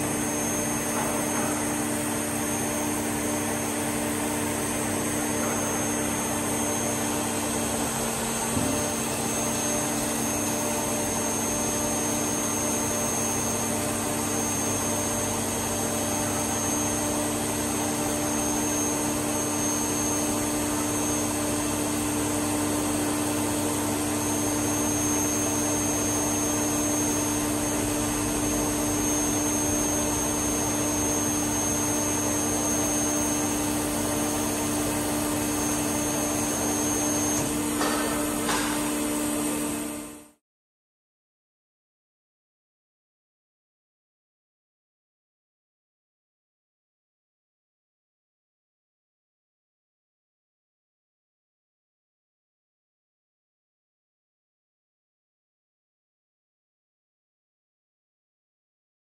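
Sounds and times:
faint high whine: 0.0s - 40.4s
machine hum: 0.0s - 40.4s.

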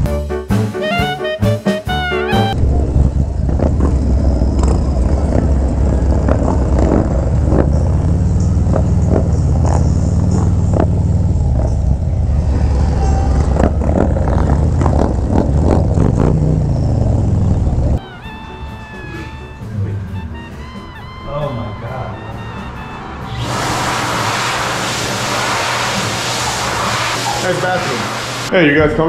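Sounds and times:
motorcycle engine running: 2.6s - 18.0s
wind rumble on microphone: 2.6s - 18.0s.

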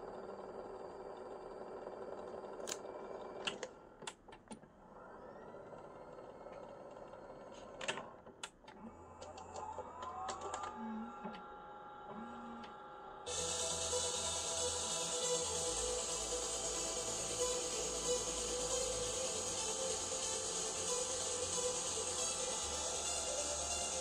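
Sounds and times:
tape transport whirring: 2.2s - 24.0s
rising whine: 9.8s - 24.0s.

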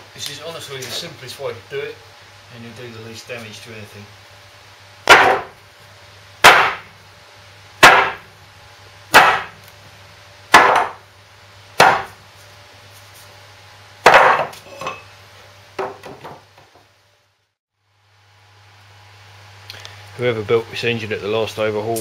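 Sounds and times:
heavy metal knocks on wood: 5.1s - 5.6s, 6.4s - 6.9s, 7.8s - 8.2s, 10.5s - 11.0s, 11.8s - 12.2s, 14.0s - 14.5s, 15.8s - 16.8s.

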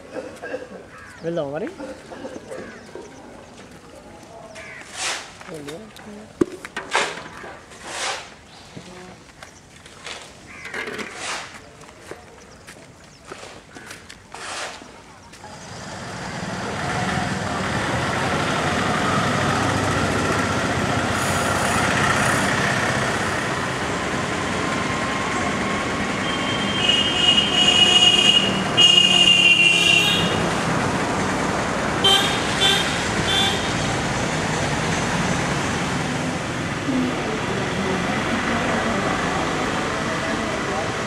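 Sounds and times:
street traffic: 0.0s - 41.0s
vehicle horns honking: 26.2s - 30.5s, 32.0s - 33.9s.

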